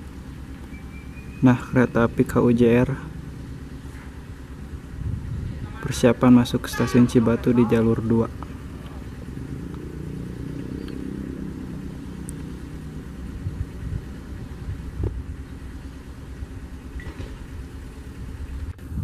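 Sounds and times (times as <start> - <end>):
continuous low rumble: 0.0 - 19.0
railcar diesel engine hum: 0.0 - 19.0.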